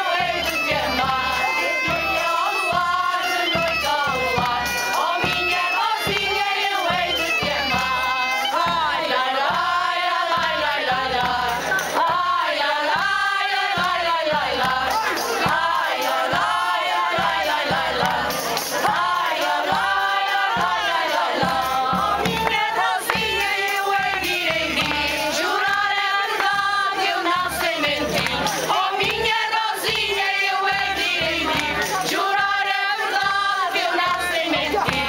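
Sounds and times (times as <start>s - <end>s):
group singing loudly: 0.0s - 35.0s
hand drum beaten with stick: 8.6s - 35.0s.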